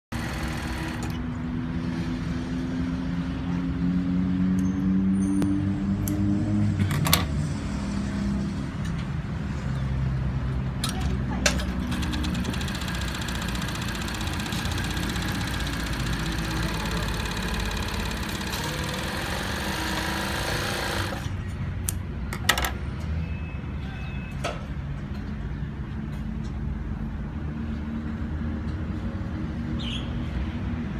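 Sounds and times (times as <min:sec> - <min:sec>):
sewing machine stitching fabric: 0:00.1 - 0:01.2, 0:11.7 - 0:21.3.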